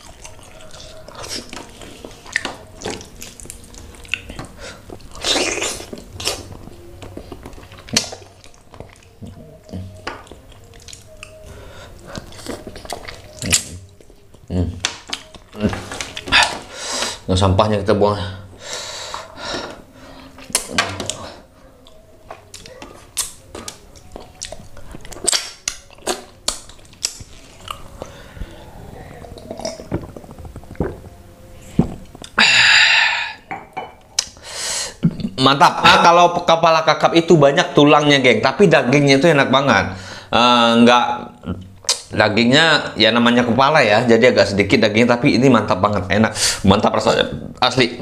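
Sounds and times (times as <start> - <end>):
chewing: 0.0 - 16.7, 20.4 - 28.5, 29.2 - 31.2
lip smacks: 21.9 - 27.8.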